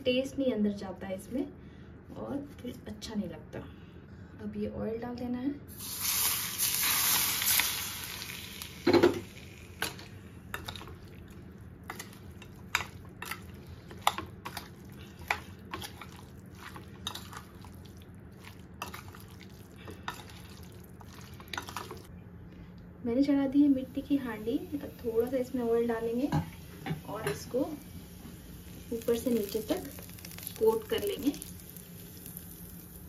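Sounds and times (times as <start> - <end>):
hot oil sizzling on chicken: 5.7 - 10.0, 24.2 - 33.0
spoon mixing marinade in bowl: 11.9 - 22.1.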